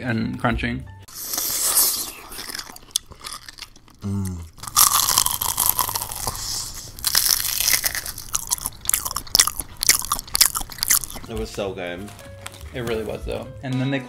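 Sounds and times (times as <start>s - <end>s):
close biting and crunching: 1.1s - 13.2s
voice humming: 4.0s - 4.6s.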